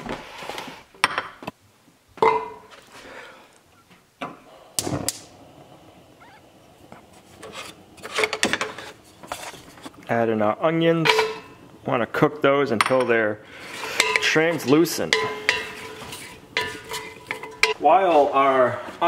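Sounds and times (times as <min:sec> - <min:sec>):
cookware knocks and clatters: 0:11.0 - 0:11.6, 0:15.0 - 0:17.8.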